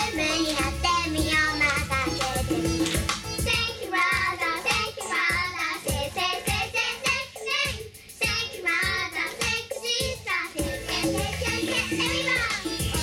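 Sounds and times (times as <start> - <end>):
backing music with steady beat: 0.0 - 13.0
girls singing pop song: 0.0 - 13.0.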